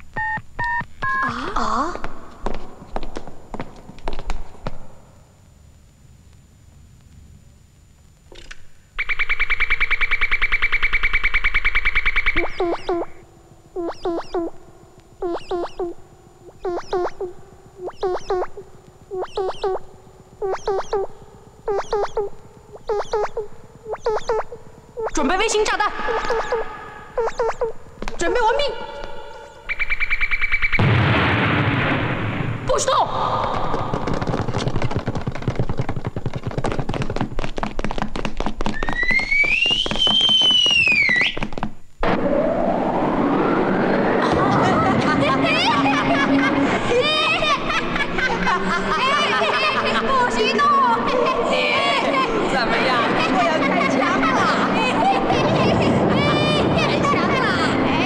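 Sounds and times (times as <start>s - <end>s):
synthesized rising chirps: 9.0s - 27.9s, 42.0s - 46.6s
cartoon clatter of thuds: 33.5s - 41.8s
rising swell of noise: 42.0s - 49.2s.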